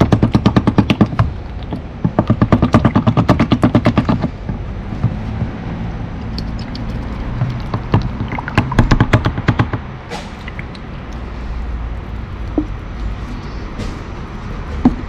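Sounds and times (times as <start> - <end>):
rapid knocking on a gold pan: 0.0 - 5.6, 6.6 - 9.9
water rumbling: 1.0 - 13.3.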